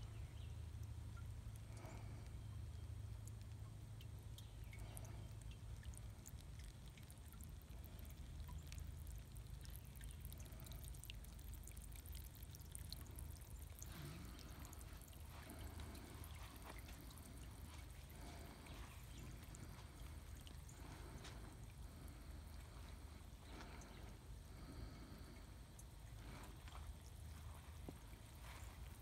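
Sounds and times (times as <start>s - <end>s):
steady low rumble: 0.0s - 29.0s
fountain water splashing on pebbles: 4.0s - 24.0s.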